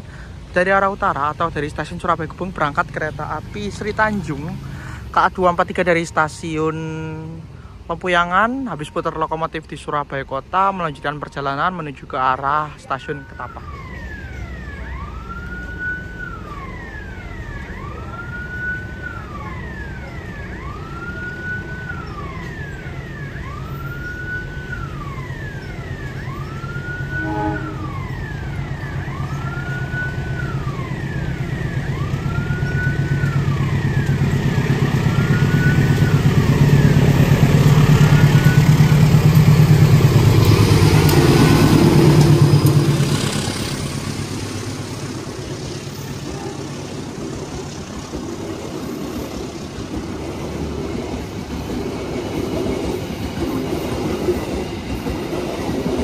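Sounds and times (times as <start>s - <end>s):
diesel train engine rumble: 0.0s - 56.0s
level crossing alarm tone: 12.6s - 46.8s.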